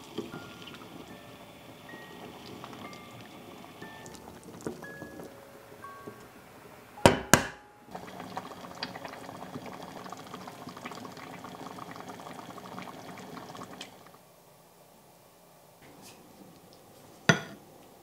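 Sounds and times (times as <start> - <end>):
stew bubbling in a pot: 0.0 - 6.3, 7.9 - 14.2
egg knocked on wooden board: 7.1 - 7.6.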